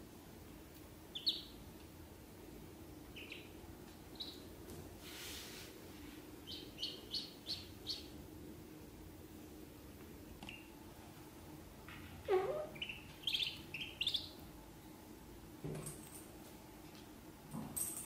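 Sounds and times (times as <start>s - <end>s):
ducklings peeping: 1.1s - 1.7s, 3.0s - 4.6s, 6.4s - 8.3s, 10.4s - 10.8s, 12.2s - 14.6s
soft rustle: 4.7s - 6.3s.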